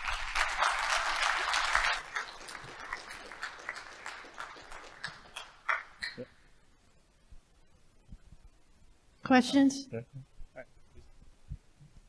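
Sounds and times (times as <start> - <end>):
audience clapping: 0.0 - 6.3.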